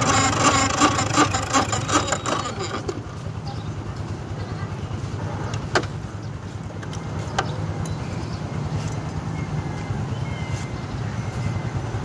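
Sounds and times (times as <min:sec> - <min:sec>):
key cutting machine motor humming: 0:00.0 - 0:02.8.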